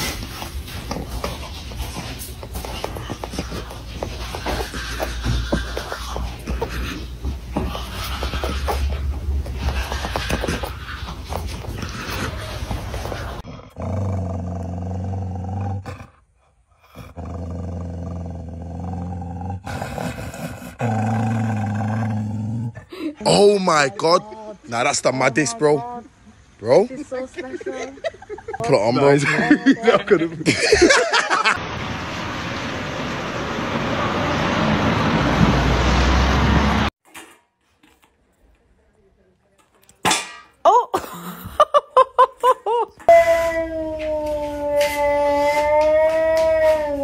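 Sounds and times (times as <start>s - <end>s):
street traffic rushing: 31.6s - 37.0s
dog howling: 43.1s - 47.0s.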